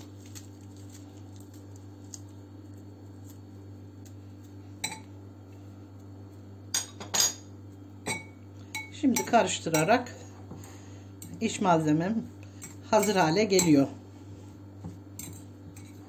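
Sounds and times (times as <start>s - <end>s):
metal cutlery clinking on glass: 12.6s - 13.8s.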